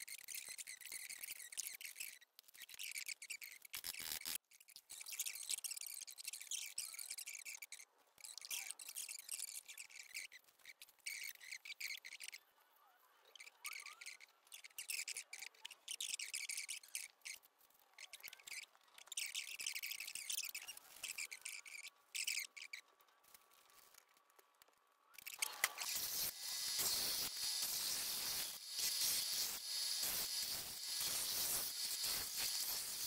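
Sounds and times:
pen scratching on plastic film: 0:00.2 - 0:07.7, 0:25.2 - 0:33.0.

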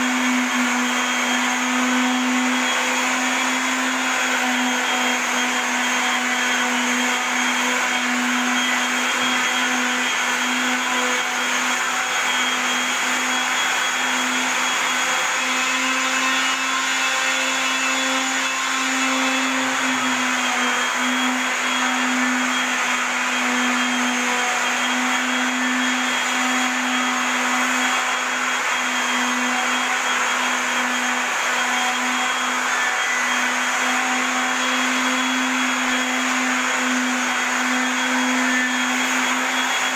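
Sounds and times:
electric sander motor hum: 0:00.0 - 0:39.9
sander pad hissing on wood: 0:16.0 - 0:39.9.

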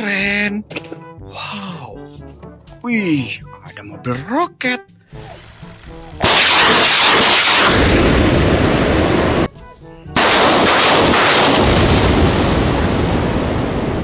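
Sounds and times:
rockets launching with rushing roar: 0:06.2 - 0:09.5, 0:10.2 - 0:14.0.

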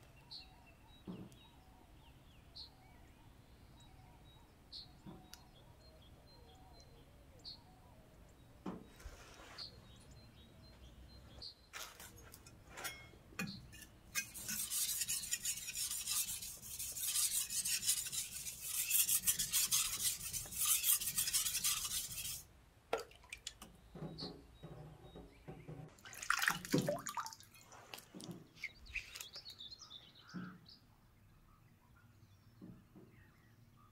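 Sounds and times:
knocks of stone and tools: 0:12.3 - 0:14.4
stone scraping on wet whetstone: 0:12.9 - 0:22.4.

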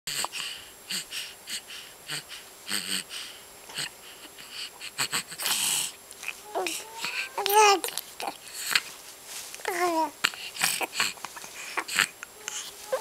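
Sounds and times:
baby cooing: 0:05.0 - 0:08.8, 0:09.7 - 0:13.0.

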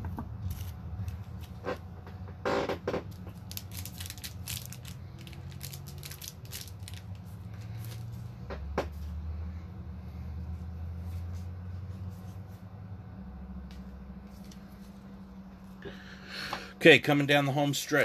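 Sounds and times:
low hum: 0:00.0 - 0:17.1
crinkly wrapper crackles: 0:03.1 - 0:08.1.

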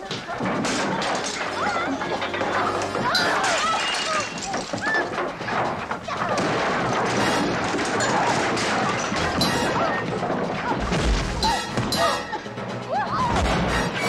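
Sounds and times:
background music: 0:00.0 - 0:14.0
shrieks and yells: 0:09.2 - 0:10.8, 0:11.4 - 0:14.0.

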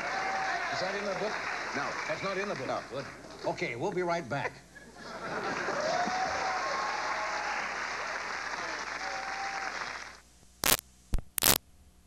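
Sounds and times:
studio audience applauding: 0:00.0 - 0:03.4, 0:05.4 - 0:10.2
low tape hiss: 0:00.0 - 0:12.0
sharp static pops: 0:10.3 - 0:12.0.

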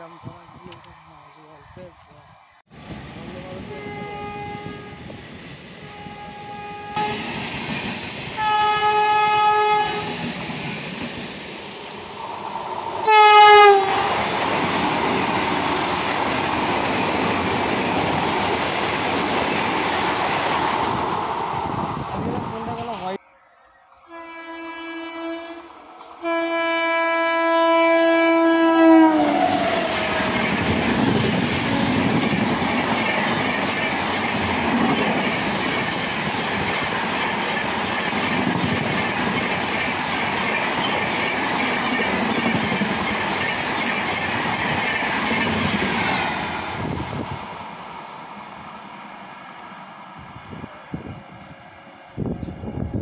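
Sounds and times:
train rushing rumble: 0:02.7 - 0:23.2, 0:25.2 - 0:53.0
locomotive horn blast: 0:03.7 - 0:05.1, 0:05.8 - 0:07.3, 0:08.4 - 0:10.2, 0:13.0 - 0:14.2, 0:24.1 - 0:30.4
train wheel clatter: 0:29.6 - 0:47.0.

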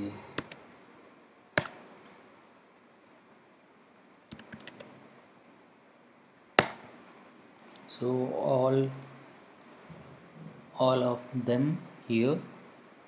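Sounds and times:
faint room hiss: 0:00.0 - 0:13.0
keyboard keystrokes: 0:04.3 - 0:04.9, 0:08.7 - 0:09.9.

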